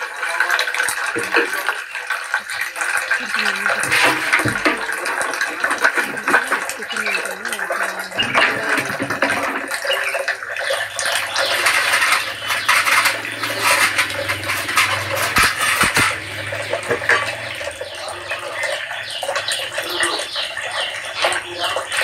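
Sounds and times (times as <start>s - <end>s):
water running and splashing: 0.0s - 22.0s
sharp knocks: 11.9s - 17.5s.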